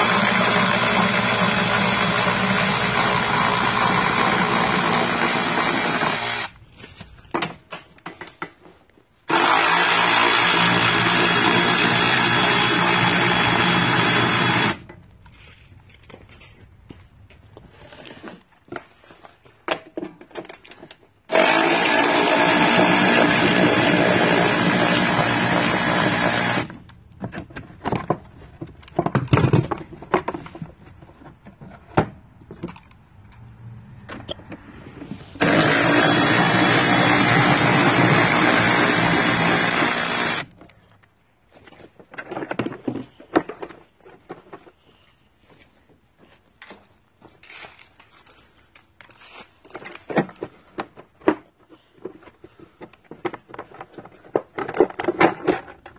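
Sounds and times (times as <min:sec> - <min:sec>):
cordless ratchet motor running: 0:09.3 - 0:14.8, 0:21.3 - 0:26.7, 0:35.4 - 0:40.5.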